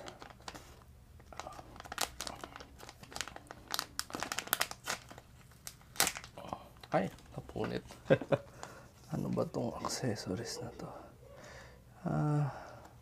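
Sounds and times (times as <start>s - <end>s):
packet crinkling: 0.0s - 7.6s.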